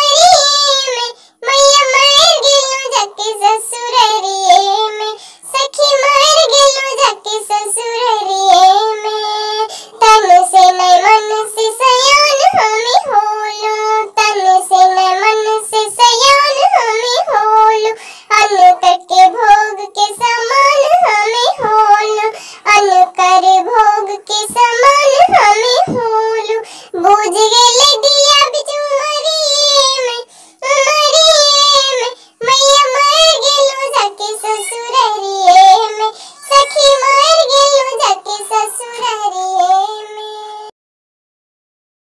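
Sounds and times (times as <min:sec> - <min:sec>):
high-pitched sped-up voice singing: 0:30.6 - 0:40.7.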